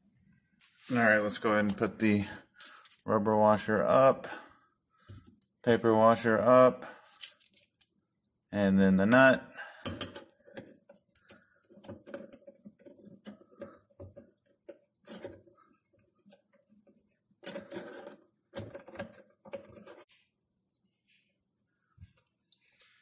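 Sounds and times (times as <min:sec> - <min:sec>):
threads scraping and clicking: 0:10.3 - 0:20.1.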